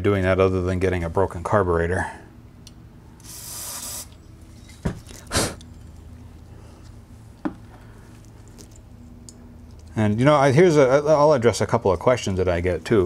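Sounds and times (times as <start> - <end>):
aerosol spray can hissing: 3.2 - 4.2
light clicks of parts handled: 4.7 - 10.0.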